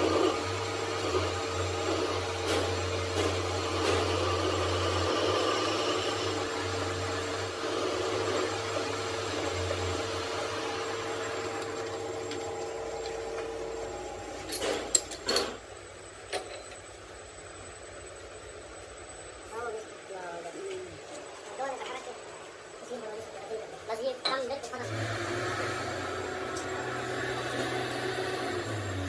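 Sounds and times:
machine motor whining: 0:00.0 - 0:14.8, 0:24.8 - 0:29.0.

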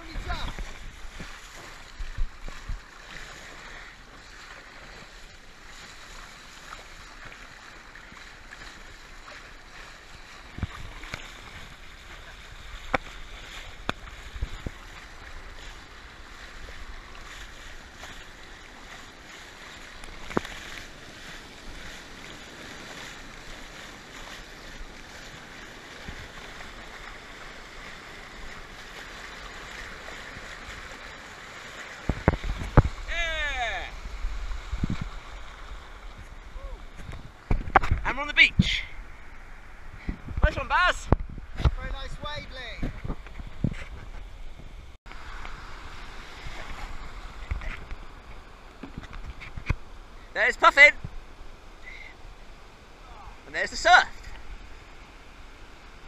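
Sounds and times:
sharp water splashes: 0:00.0 - 0:36.5
sea water rushing around kayak: 0:00.0 - 0:56.0.

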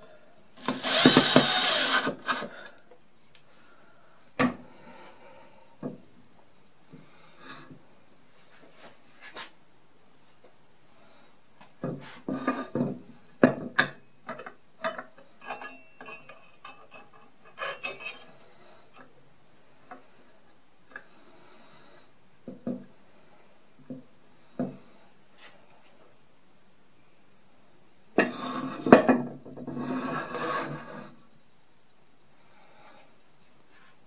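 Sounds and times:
metal clinks and clicks of saw vise: 0:15.4 - 0:18.3.

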